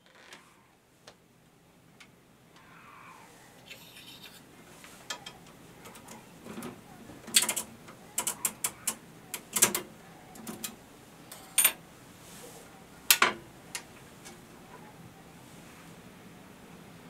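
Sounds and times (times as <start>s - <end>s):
cash register mechanism clicking: 5.1s - 11.8s.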